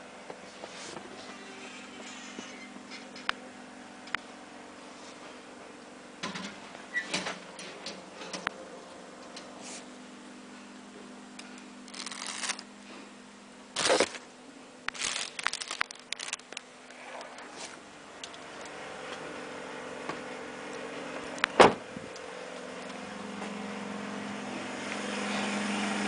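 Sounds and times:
steady low hum: 0.0s - 26.0s
plastic seat covers crinkling: 11.9s - 12.7s, 13.8s - 14.3s, 14.9s - 16.7s.

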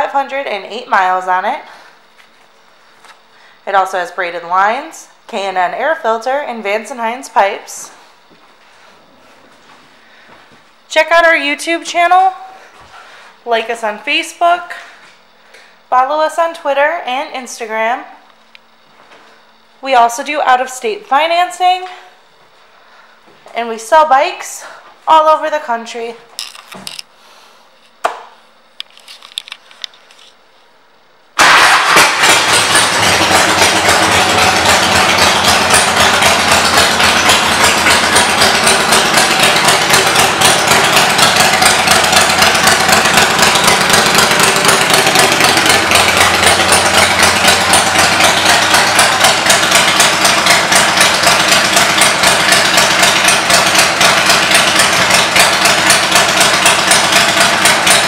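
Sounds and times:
motorcycle engine starting and idling: 31.4s - 58.0s.

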